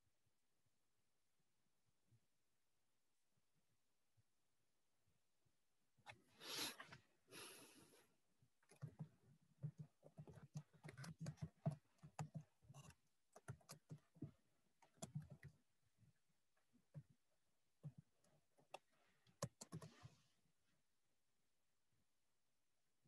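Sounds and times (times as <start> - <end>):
faint keyboard typing: 8.6 - 15.7, 17.8 - 20.3.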